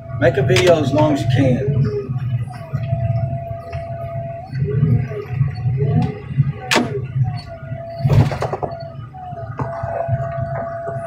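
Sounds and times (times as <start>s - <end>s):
diesel heavy equipment rumbling: 0.0s - 11.0s
wavering hydraulic whine: 0.0s - 11.0s.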